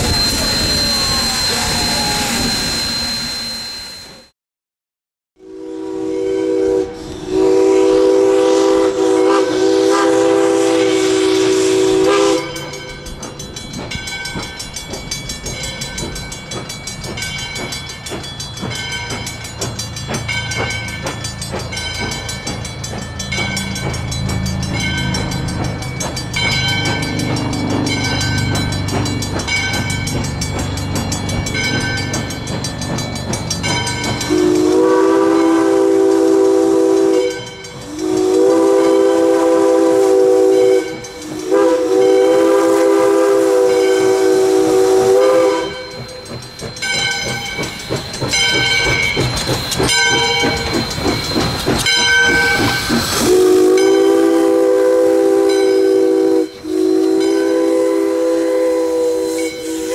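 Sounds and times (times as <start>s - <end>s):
locomotive bell ringing: 0.0s - 4.3s, 10.7s - 59.9s
steam whistle chord blast: 0.0s - 4.3s, 5.4s - 12.9s, 34.2s - 46.1s, 52.0s - 59.9s.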